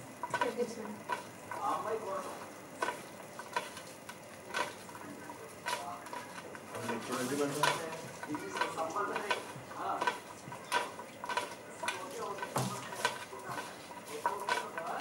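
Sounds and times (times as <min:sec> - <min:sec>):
fries sizzling in oil: 0:00.0 - 0:15.0
metal utensil scraping pan: 0:05.6 - 0:15.0.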